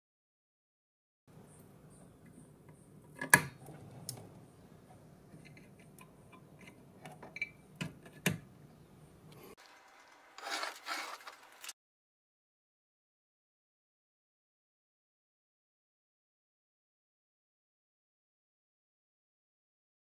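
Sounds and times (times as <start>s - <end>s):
rustling: 9.4s - 11.8s
hands scraping under printer: 10.4s - 11.7s.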